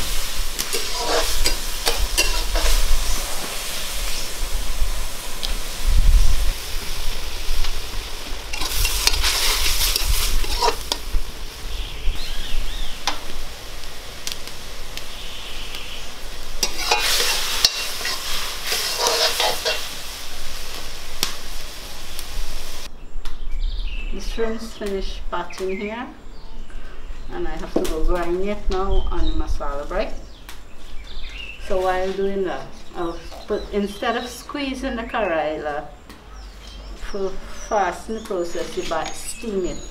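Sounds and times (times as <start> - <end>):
shrimp sizzling in pot: 0.0 - 22.9
metal spoon scraping pot: 0.6 - 3.0, 8.5 - 11.0, 16.6 - 20.0.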